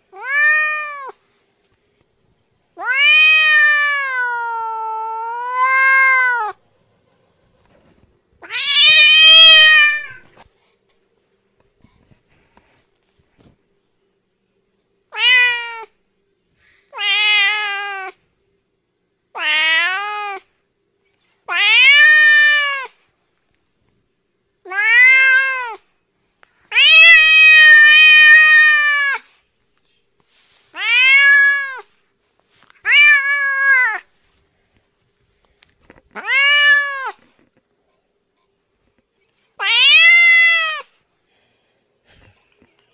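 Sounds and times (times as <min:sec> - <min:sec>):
cat meowing: 0:00.1 - 0:01.2, 0:02.8 - 0:06.6, 0:08.4 - 0:10.3, 0:15.1 - 0:15.9, 0:16.9 - 0:18.2, 0:19.4 - 0:20.5, 0:21.5 - 0:23.0, 0:24.7 - 0:25.8, 0:26.7 - 0:29.3, 0:30.7 - 0:31.9, 0:32.8 - 0:34.1, 0:36.1 - 0:37.3, 0:39.6 - 0:40.9.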